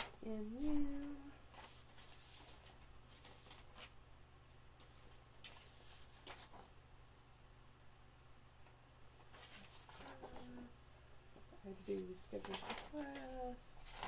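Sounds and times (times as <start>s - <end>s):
paper rustling: 0.0s - 4.0s, 4.8s - 6.8s, 9.2s - 10.7s, 11.7s - 14.0s.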